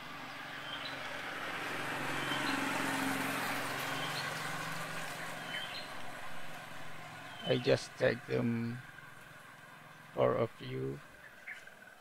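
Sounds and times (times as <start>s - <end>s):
vehicle passing on road: 0.0s - 12.0s
high bird chirps: 5.4s - 5.9s, 11.2s - 11.8s.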